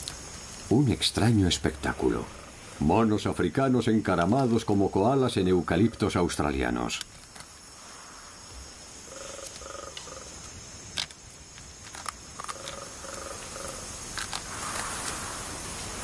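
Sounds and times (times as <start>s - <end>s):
high insect hum: 0.0s - 16.0s
animal hooting calls: 12.5s - 13.9s.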